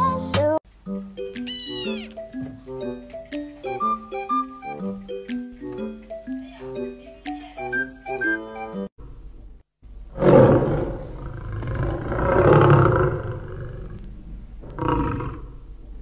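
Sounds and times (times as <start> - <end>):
lion roaring: 10.1 - 15.7.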